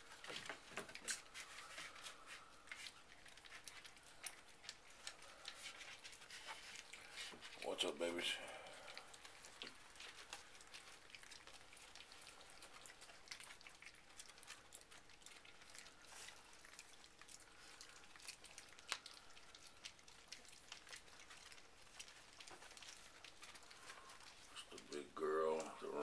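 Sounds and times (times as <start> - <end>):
puppies clicking and rustling: 0.0 - 26.0.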